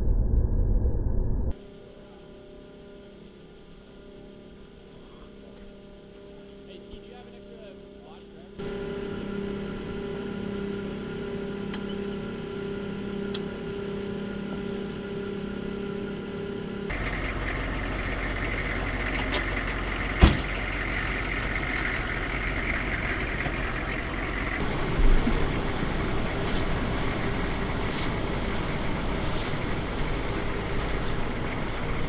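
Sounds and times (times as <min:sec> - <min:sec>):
diesel engine idling: 0:08.6 - 0:32.0.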